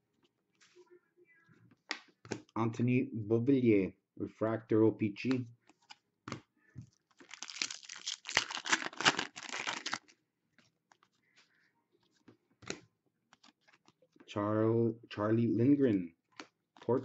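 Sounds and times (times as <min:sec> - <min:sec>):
foil wrapper tearing and crinkling: 0:07.2 - 0:10.1.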